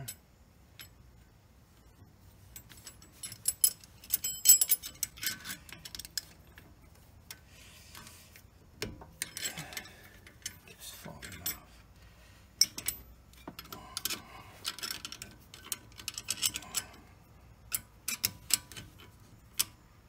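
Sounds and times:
wrench clicking on metal screw: 12.6s - 17.0s, 17.7s - 19.8s.

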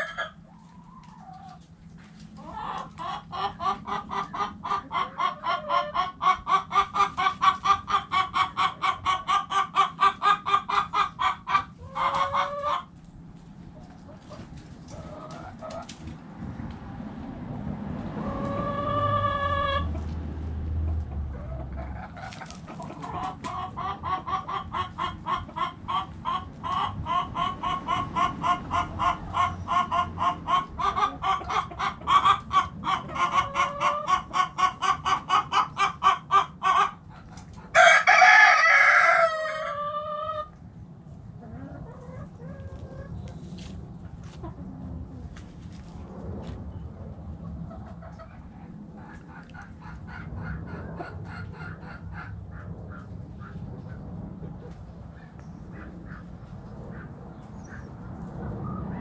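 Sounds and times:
hen clucking: 0.0s - 16.2s, 18.0s - 20.2s, 20.8s - 40.6s, 41.3s - 45.4s, 47.4s - 59.0s
rooster crowing: 37.8s - 40.4s.

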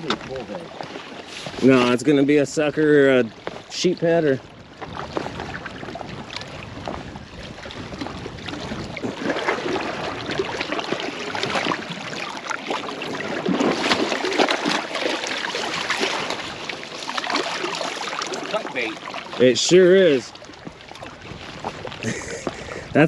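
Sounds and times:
water lapping against rocks: 0.0s - 23.0s.

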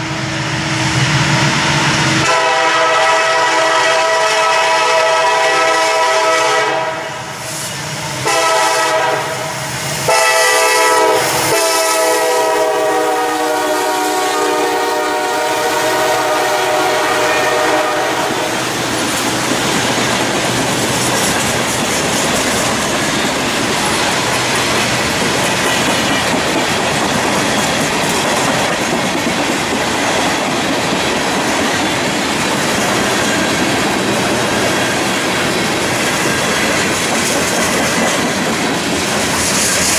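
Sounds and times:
train air horn blasts: 2.2s - 7.4s, 8.2s - 18.8s
train wheels clacking over rail joints: 9.9s - 39.9s.

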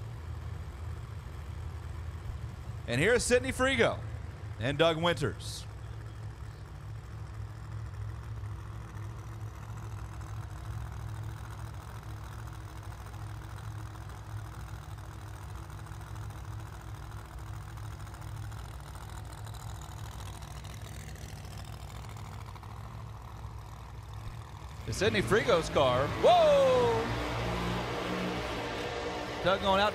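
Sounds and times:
drag car engines idling: 0.0s - 29.9s.

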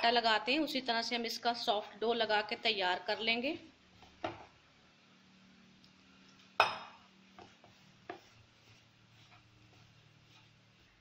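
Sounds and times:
hand rustling flour in bowl: 7.2s - 11.0s.

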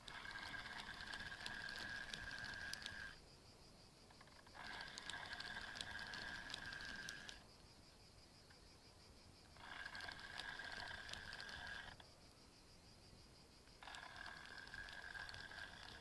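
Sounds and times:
fishing reel whirring: 0.0s - 3.2s, 4.5s - 7.4s, 9.6s - 12.0s, 13.8s - 16.0s.

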